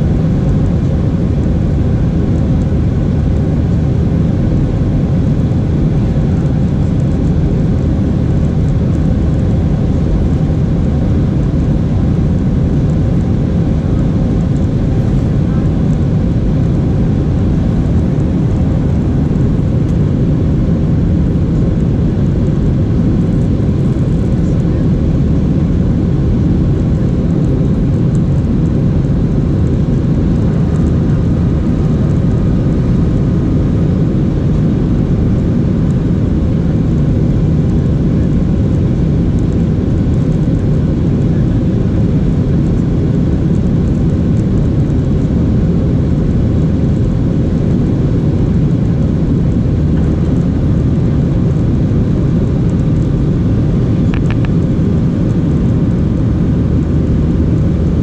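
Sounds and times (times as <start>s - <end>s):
airplane cabin engine rumble: 0.0s - 58.0s
faint steady hum: 0.0s - 58.0s.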